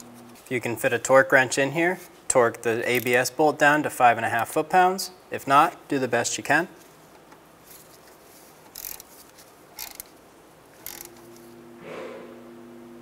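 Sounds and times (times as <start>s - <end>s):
socket ratchet clicks: 8.7s - 9.1s, 9.8s - 10.2s, 10.8s - 11.2s
steady low hum: 10.1s - 13.0s.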